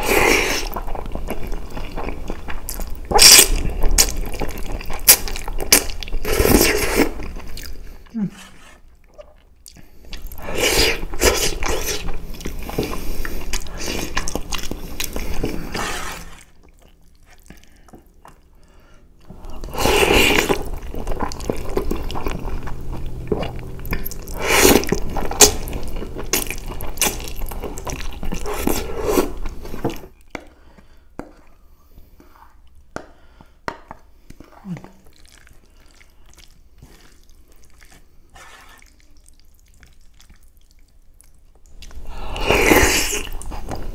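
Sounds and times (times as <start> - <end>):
wet slurping of noodles: 15.0 - 16.5, 19.6 - 22.6, 38.2 - 39.0, 42.0 - 43.9.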